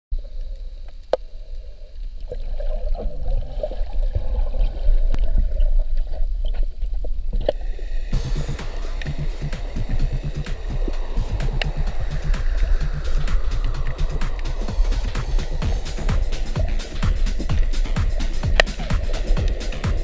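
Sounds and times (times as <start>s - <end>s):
underwater rumble and sloshing: 0.2s - 20.0s
music: 8.0s - 20.0s
sharp clicks: 8.5s - 20.0s.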